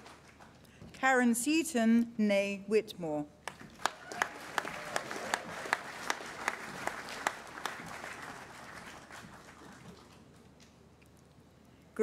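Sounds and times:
loud close hand claps: 0.0s - 0.5s, 3.4s - 10.3s
audience applauding: 0.0s - 0.6s, 3.5s - 10.4s.

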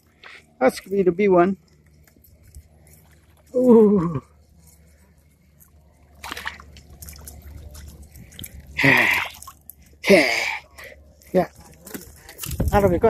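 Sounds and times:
water splashing and dripping: 6.0s - 10.8s.

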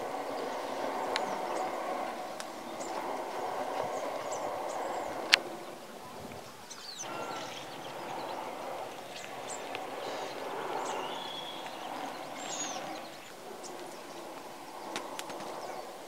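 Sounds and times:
bird calls and chirps: 0.0s - 16.0s
steady rushing background: 0.0s - 16.0s.

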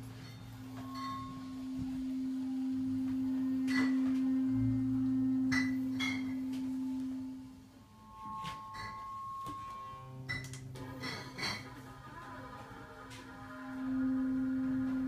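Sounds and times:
higher steady tone: 0.0s - 11.5s
low pure tone: 0.0s - 15.0s.

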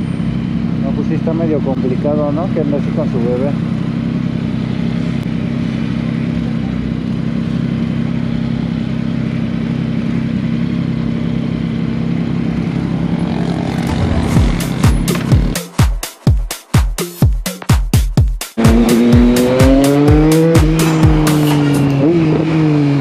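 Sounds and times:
motorcycle engine idling: 0.0s - 15.6s
electronic dance beat: 13.9s - 21.8s.

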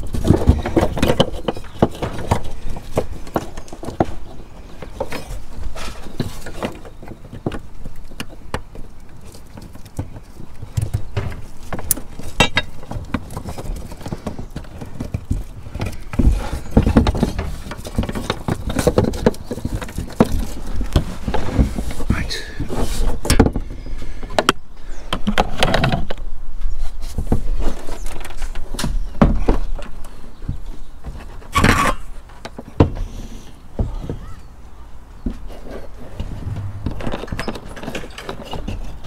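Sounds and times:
heavy thuds: 36.2s - 37.7s.

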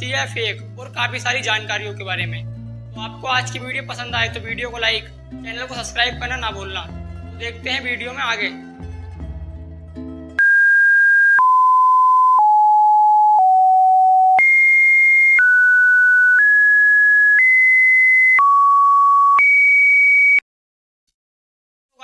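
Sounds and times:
electronic beep tones: 10.4s - 20.4s.

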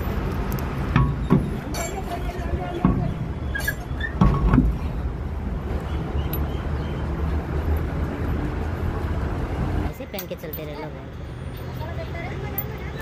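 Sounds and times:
metal wheel nuts clinking: 0.9s - 4.5s.

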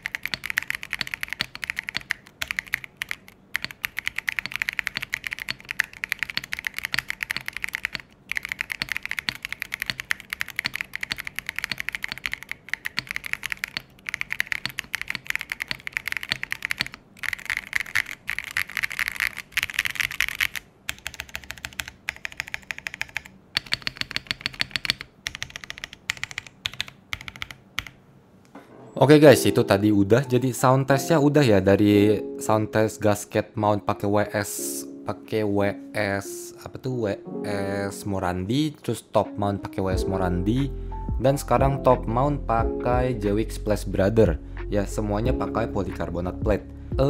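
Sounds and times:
mechanical keyboard typing: 0.0s - 28.0s.

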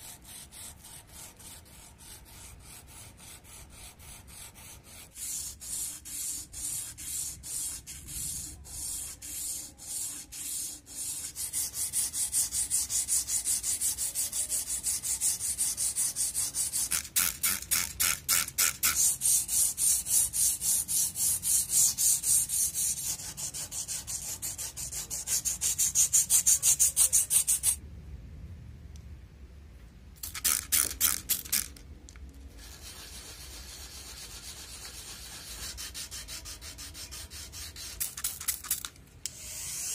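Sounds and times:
sandpaper rubbing on steel: 0.0s - 27.8s, 32.6s - 39.9s.

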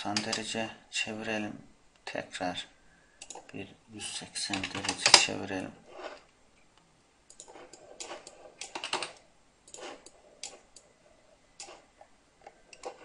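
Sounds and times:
keyboard and mouse clicks: 0.1s - 0.4s, 3.2s - 3.6s, 7.3s - 10.9s, 11.6s - 13.0s.

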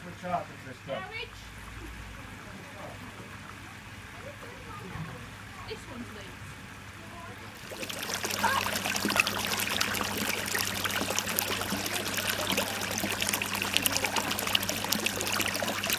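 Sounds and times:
water pouring into a pond: 7.5s - 15.9s.

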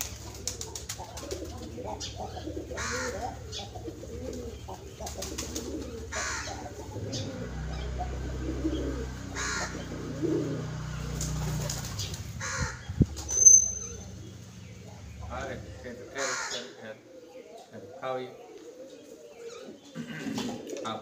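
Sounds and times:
pigeons cooing: 0.0s - 21.0s
crow cawing: 2.3s - 3.5s, 6.1s - 6.8s, 9.3s - 10.0s, 12.4s - 12.9s, 16.0s - 16.8s
high chirp: 12.9s - 15.1s.

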